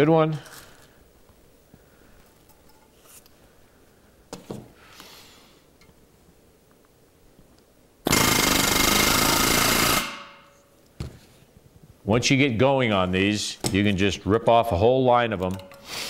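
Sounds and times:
pneumatic rivet gun hammering: 8.1s - 10.4s.

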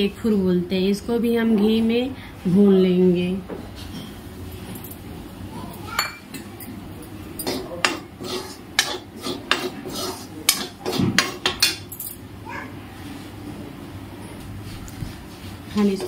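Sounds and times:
metal spoon scraping metal pan: 7.4s - 11.4s.

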